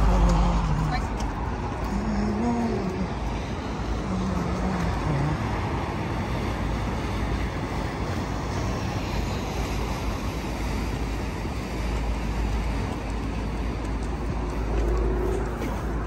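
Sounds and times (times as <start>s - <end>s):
road traffic rumble and hiss: 0.0s - 16.0s.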